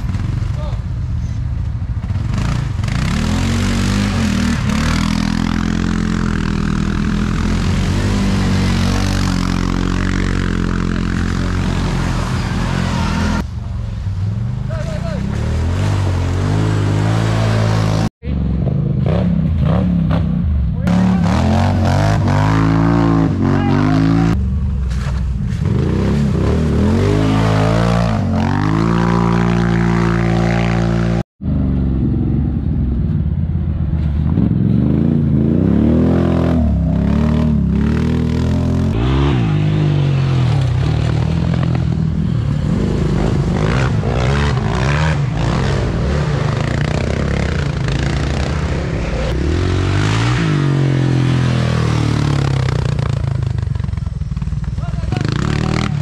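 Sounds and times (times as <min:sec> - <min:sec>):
quad engines revving: 0:02.0 - 0:13.4, 0:14.7 - 0:24.4, 0:25.7 - 0:31.2, 0:34.3 - 0:56.0.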